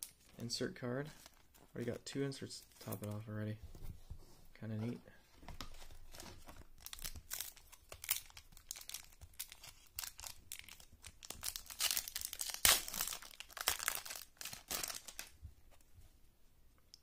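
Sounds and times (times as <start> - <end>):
foil wrapper crinkling: 6.8 - 15.3
foil wrapper ripping: 6.8 - 15.3.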